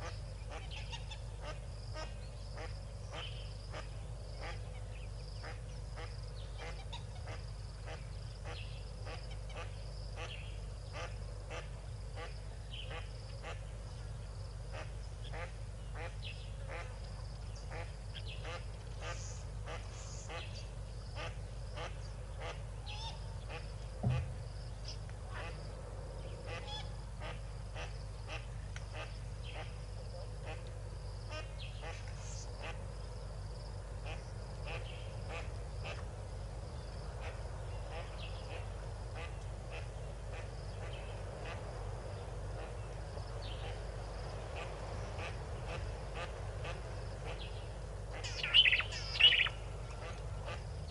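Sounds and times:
steady low hum: 0.0 - 50.9
duck quacking: 5.4 - 13.7, 21.2 - 24.4, 26.5 - 29.8, 44.5 - 50.6
ducks calling: 14.7 - 25.6, 42.6 - 50.9
thin high bird calls: 48.1 - 50.2.

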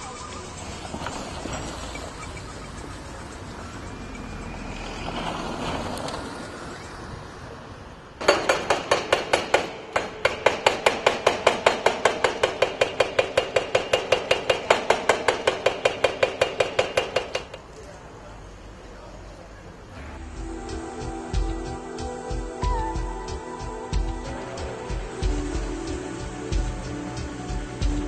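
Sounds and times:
low background noise: 0.0 - 28.0
hydraulic breaker hammering concrete: 8.2 - 17.5.

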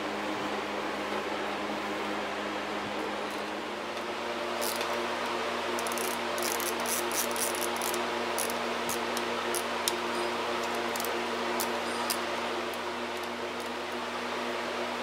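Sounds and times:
steady background hum: 0.0 - 15.0
socket ratchet clicking: 4.6 - 5.0, 5.8 - 10.0, 10.6 - 13.8.

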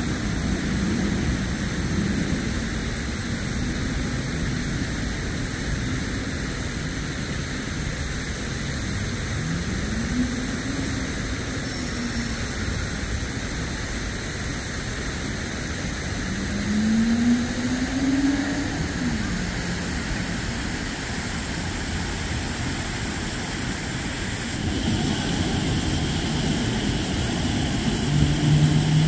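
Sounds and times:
city road traffic: 0.0 - 29.0
vehicle engine accelerating: 16.2 - 22.9, 24.4 - 29.0.

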